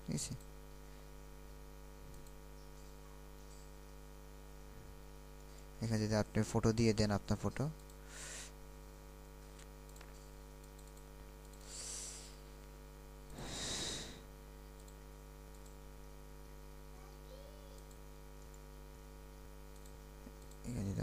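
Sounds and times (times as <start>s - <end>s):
low electrical hum: 0.0s - 21.0s
short breathy hisses: 11.6s - 12.4s, 13.4s - 14.3s.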